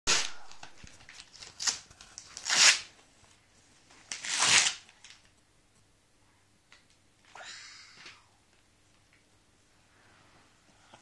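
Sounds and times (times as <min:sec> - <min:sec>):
wrapping paper tearing: 0:00.1 - 0:03.0, 0:04.1 - 0:05.3.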